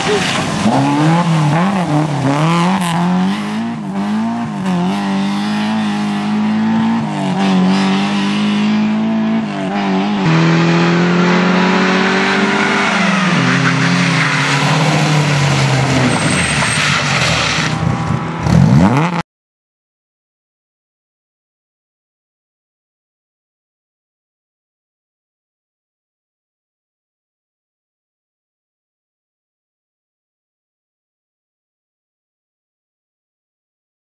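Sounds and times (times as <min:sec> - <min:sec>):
rally car engines revving: 0:00.0 - 0:19.2.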